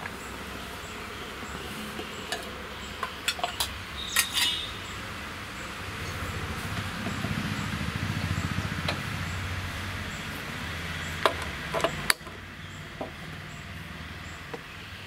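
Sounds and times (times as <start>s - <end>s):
metal tongs and pan clinking: 3.2s - 4.7s.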